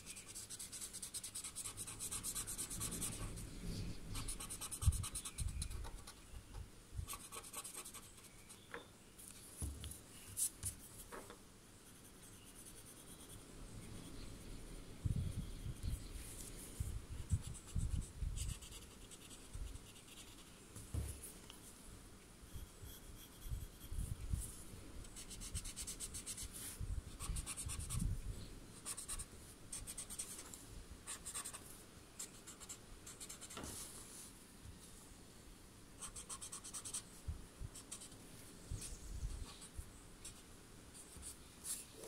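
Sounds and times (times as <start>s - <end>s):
pencil scratching on paper: 0.0s - 3.4s, 4.1s - 6.2s, 7.1s - 8.6s.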